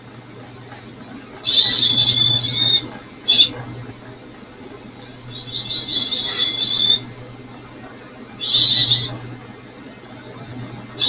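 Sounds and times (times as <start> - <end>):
steady low hum: 0.0 - 11.0
buzzy high-pitched bird calls: 1.4 - 3.6, 5.0 - 7.2, 8.4 - 9.3.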